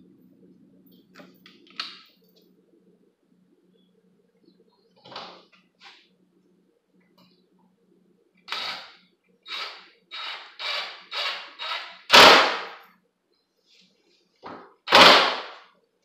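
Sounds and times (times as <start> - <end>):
impact driver bursts: 8.5 - 12.8, 14.9 - 15.6.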